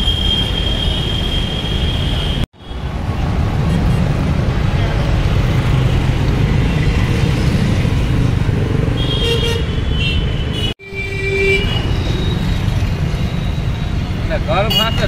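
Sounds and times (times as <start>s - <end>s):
busy road traffic: 0.0s - 15.0s
vehicle horns honking: 9.0s - 12.6s, 14.5s - 15.0s.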